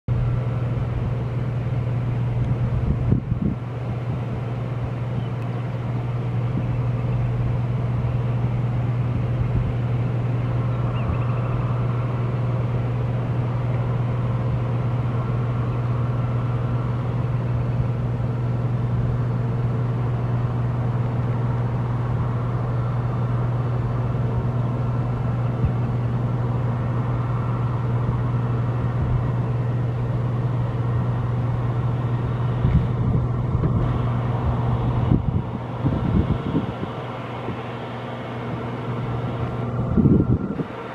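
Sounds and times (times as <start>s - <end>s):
jet engines roaring: 0.1s - 40.9s
wind on microphone: 2.3s - 5.0s, 32.1s - 37.8s, 38.5s - 40.8s.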